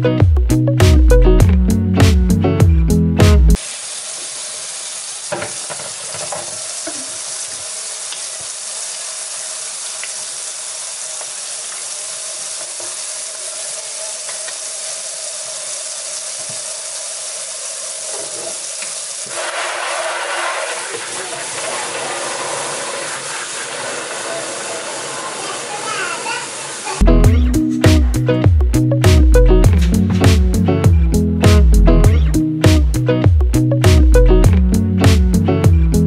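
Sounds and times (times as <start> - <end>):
steady hiss: 3.6 - 27.0
water spraying from hose into bucket: 3.6 - 27.0.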